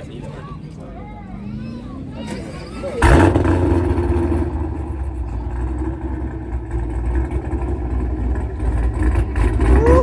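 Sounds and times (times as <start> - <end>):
car engine idling: 2.9 - 10.0.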